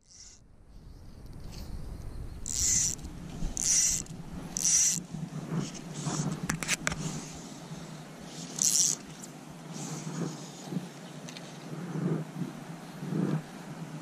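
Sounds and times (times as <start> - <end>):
fly line zipping off reel: 0.0 - 0.4, 2.4 - 3.0, 3.6 - 5.1, 8.4 - 9.3
reel clicks: 2.4 - 7.1, 8.4 - 9.4.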